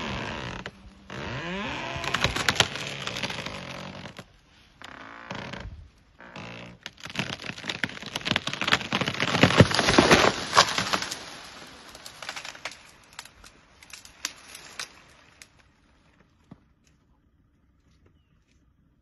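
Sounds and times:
tree splintering and crashing: 0.0 - 4.3, 6.2 - 15.7
branches crackling: 0.0 - 18.6.

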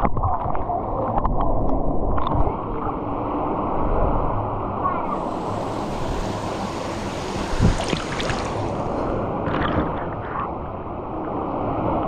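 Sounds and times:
small splashes: 5.1 - 10.0
muffled water sloshing: 5.1 - 10.6.

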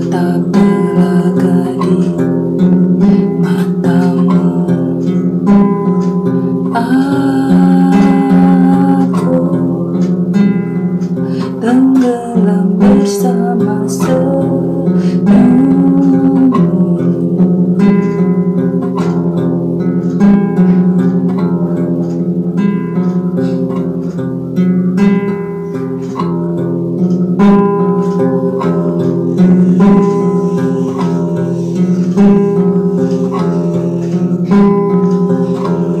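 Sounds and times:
person singing: 0.0 - 19.3, 28.1 - 36.0
acoustic guitar chords: 0.0 - 36.0.

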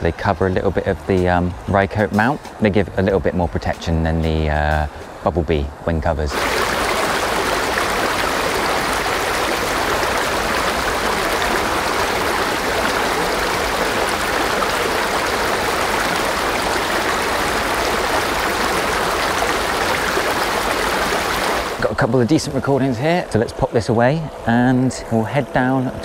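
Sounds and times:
stream water rushing: 6.2 - 26.0.

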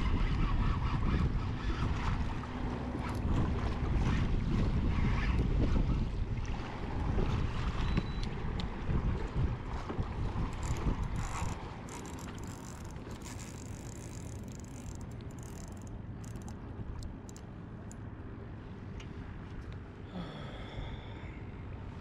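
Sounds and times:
fishing reel clicking: 10.5 - 18.0.

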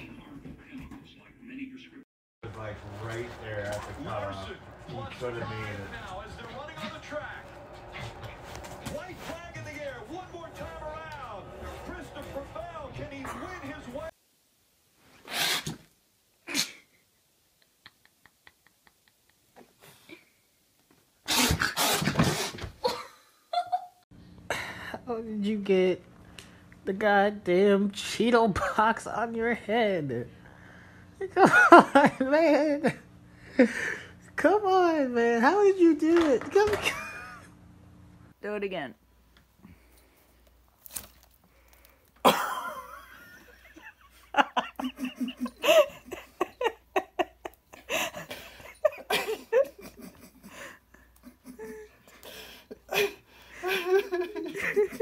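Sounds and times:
person laughing: 22.8 - 24.7, 42.2 - 55.0.

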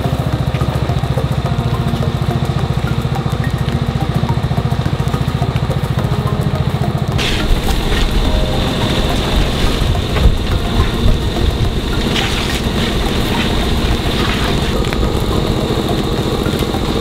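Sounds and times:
small engine running steadily: 0.0 - 17.0.

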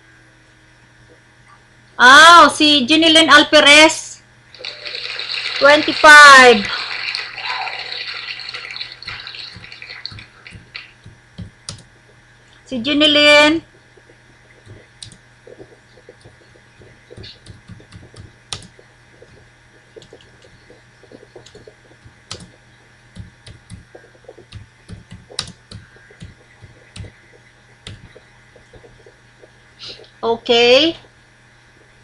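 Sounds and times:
faint steady hum: 0.0 - 32.0
keyboard typing clicks: 9.1 - 11.9, 14.6 - 19.4, 20.0 - 29.2.

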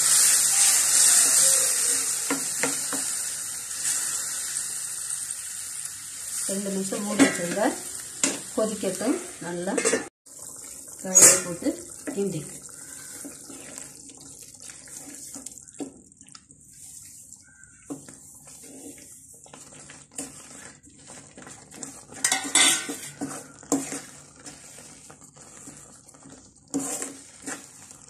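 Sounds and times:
spatula clattering: 9.6 - 10.1, 17.8 - 28.0
wooden spatula scraping pan: 11.0 - 14.0, 16.6 - 28.0.

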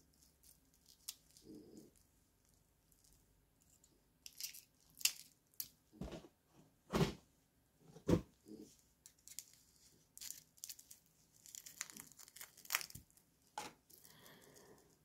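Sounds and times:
packaging crinkling and tearing: 9.1 - 13.2.

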